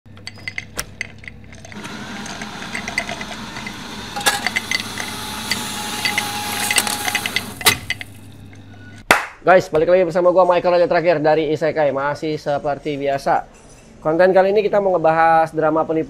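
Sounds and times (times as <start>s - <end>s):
sharp clicks and rattles: 0.1s - 8.7s
small electric motor running: 1.8s - 9.0s.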